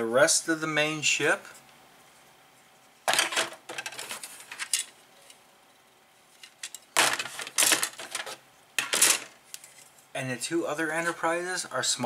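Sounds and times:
plastic parts clattering: 3.1s - 4.9s, 6.4s - 9.4s.

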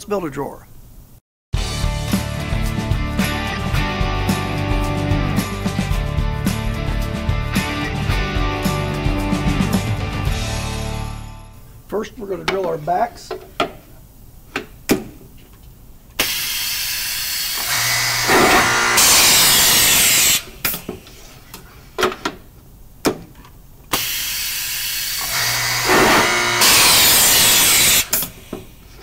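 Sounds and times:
drilling machine boring wood: 16.2s - 20.4s, 24.0s - 28.2s.

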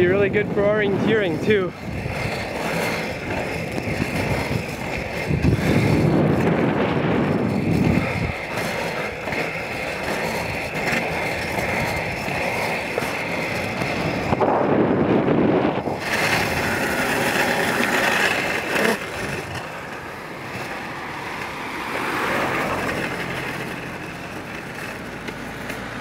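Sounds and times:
car passing: 0.0s - 26.0s
skate wheels rolling on asphalt: 0.0s - 26.0s.

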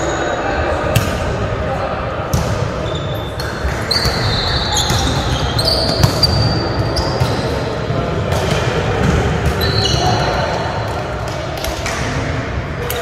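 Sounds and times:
murmur of voices: 0.0s - 13.0s
shoes squeaking on wooden court: 2.8s - 7.8s, 9.6s - 10.2s.

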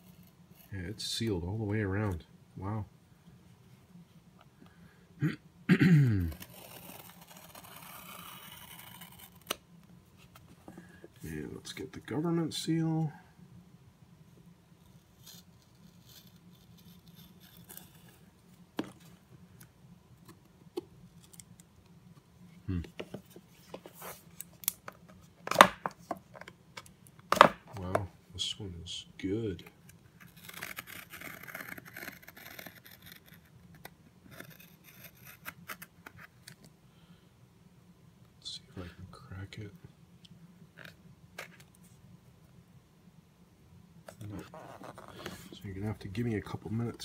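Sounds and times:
scissors cutting paper: 30.2s - 35.9s.

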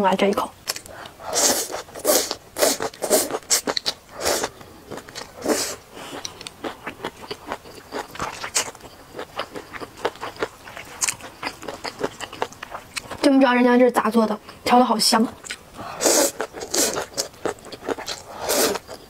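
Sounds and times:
chewing with crisp clicks: 0.6s - 13.3s, 15.4s - 19.0s
loud slurping: 1.3s - 4.5s, 5.3s - 6.1s, 15.8s - 18.9s.

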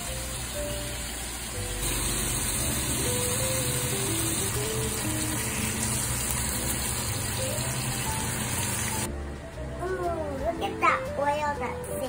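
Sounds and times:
fish sizzling in frying pan: 0.0s - 9.1s
light background music: 0.0s - 12.0s.

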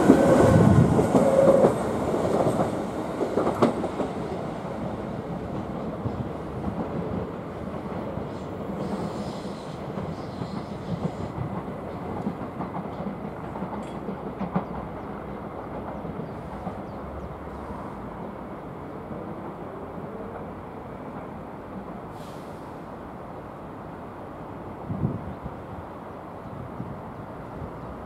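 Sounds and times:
train wheels clattering over switches: 10.0s - 15.0s.

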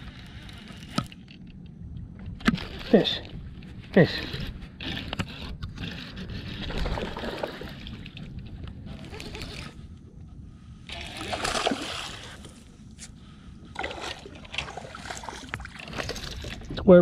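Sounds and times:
water splashing beside boat: 10.9s - 16.8s.

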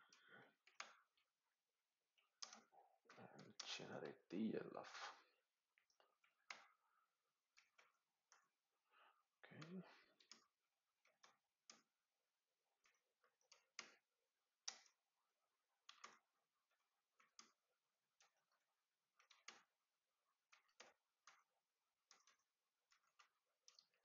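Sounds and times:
computer keyboard keystrokes: 15.8s - 16.3s, 19.2s - 19.7s, 20.5s - 21.5s, 22.1s - 24.0s.

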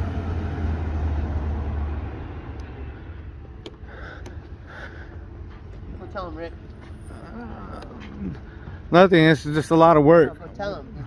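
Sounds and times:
car engine humming: 0.0s - 11.0s.

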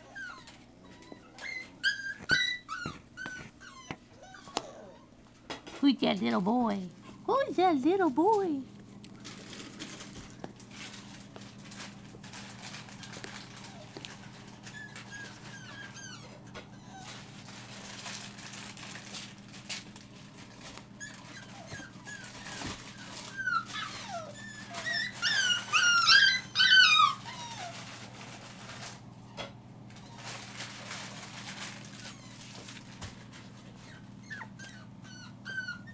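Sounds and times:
puppies whimpering: 0.0s - 5.4s, 7.2s - 17.8s, 20.2s - 28.1s, 31.6s - 35.9s.

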